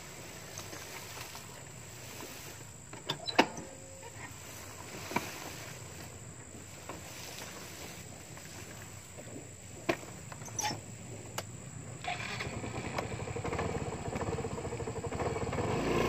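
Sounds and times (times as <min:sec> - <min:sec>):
grass stems swishing: 0:04.3 - 0:09.1
scooter clacking: 0:12.0 - 0:16.0.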